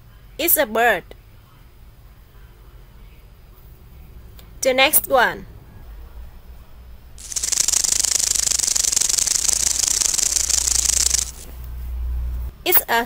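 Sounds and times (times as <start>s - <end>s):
rattlesnake tail rattling: 7.2s - 11.7s.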